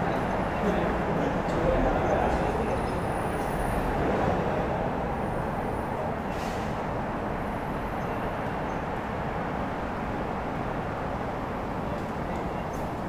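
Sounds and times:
train wheels rumbling on rail: 0.0s - 9.2s.

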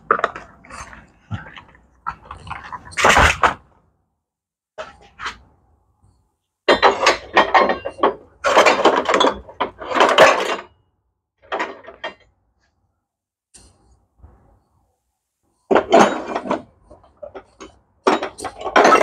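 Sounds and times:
small metal parts clattering: 6.7s - 10.7s, 15.7s - 19.0s.

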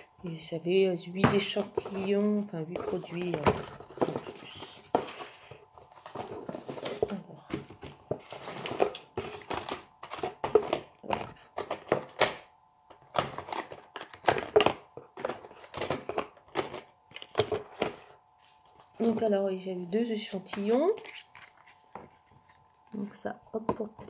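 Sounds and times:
knocks and taps of packaging: 6.1s - 12.4s, 13.1s - 18.0s.

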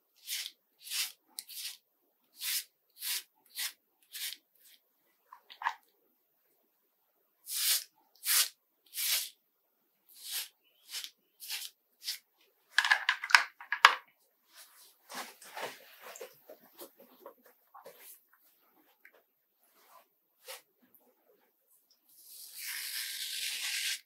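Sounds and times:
clothing rustling: 14.4s - 21.6s.

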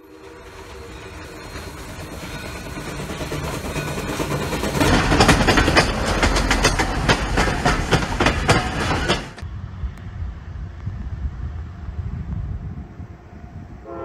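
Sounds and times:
low train rumble: 0.0s - 14.0s
train wheels clacking over joints: 0.1s - 9.4s.

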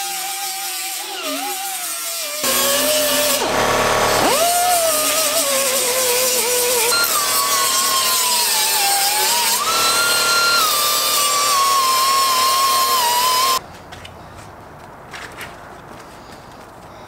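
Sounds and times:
angle grinder grinding metal: 0.0s - 13.6s.

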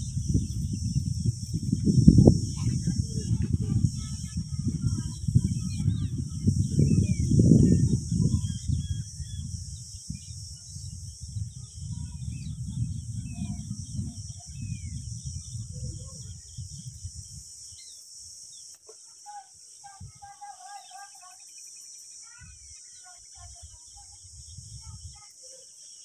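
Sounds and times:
low microphone rumbling: 0.0s - 17.4s
high insect trill: 0.0s - 26.0s.

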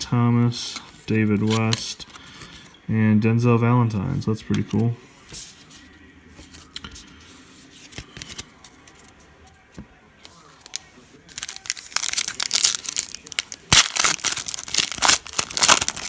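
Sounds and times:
foil pack crinkling: 10.6s - 16.0s.

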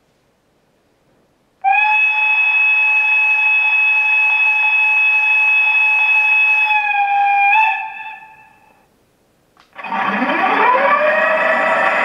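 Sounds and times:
model locomotive horn blast: 1.6s - 8.8s.

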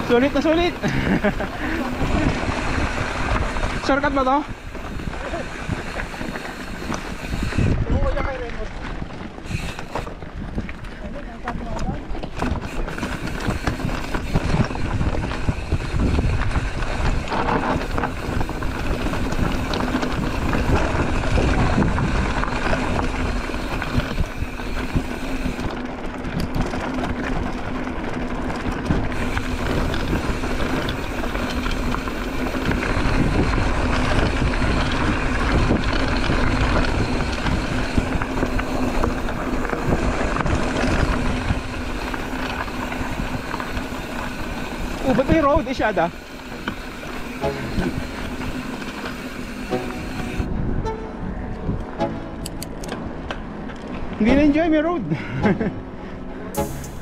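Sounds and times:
wind rushing over microphone: 0.0s - 11.2s, 11.8s - 54.6s
bicycle tyres on dirt trail: 0.0s - 57.0s
bike rattling over bumps: 0.0s - 57.0s.

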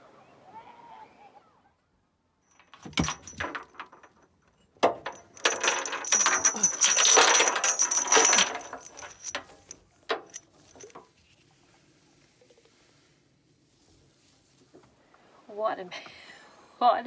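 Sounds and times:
anchor chain rattling: 2.4s - 11.1s.

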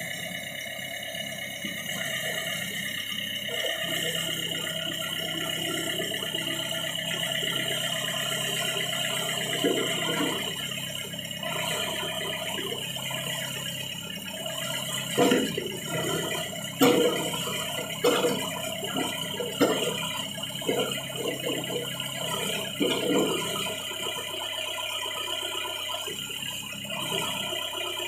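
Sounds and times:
backhoe engine running: 0.0s - 28.0s
metallic clanks and rattles: 15.1s - 23.7s.

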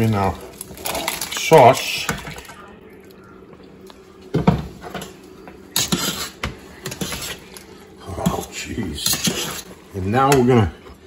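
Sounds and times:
utensil scraping metal pot: 5.8s - 7.6s, 8.2s - 10.4s.

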